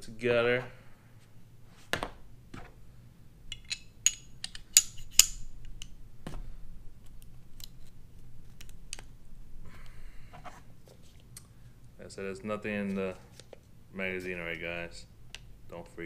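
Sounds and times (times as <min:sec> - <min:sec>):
metal pistol parts clicking: 0:03.5 - 0:06.0.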